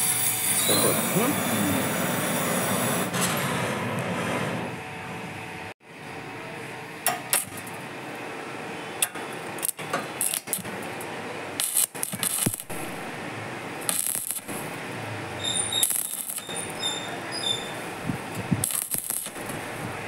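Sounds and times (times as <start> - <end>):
arc welding crackling: 9.0 - 20.0.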